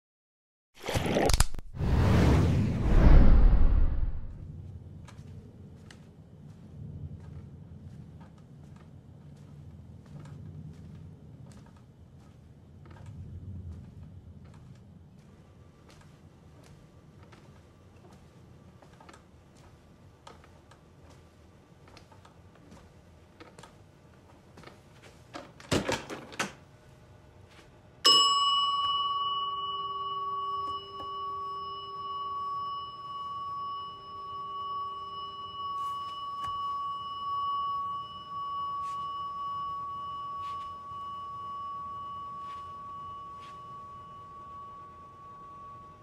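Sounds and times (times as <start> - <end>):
faint footsteps: 4.4 - 25.3
desk bell ringing: 28.0 - 46.0.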